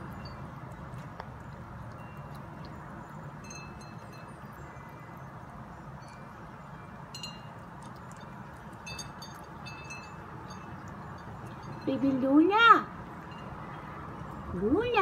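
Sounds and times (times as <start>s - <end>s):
kitten eating wet food: 0.0s - 11.8s
high-pitched tinkles: 7.1s - 7.5s, 8.9s - 12.2s.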